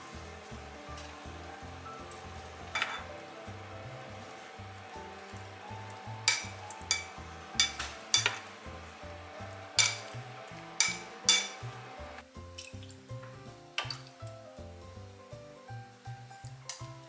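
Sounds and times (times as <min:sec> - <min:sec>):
soft background music: 0:00.0 - 0:17.0
tofu simmering and sizzling: 0:00.0 - 0:17.0
chopsticks knocking on pot: 0:06.2 - 0:08.4, 0:09.8 - 0:10.2, 0:10.8 - 0:11.6.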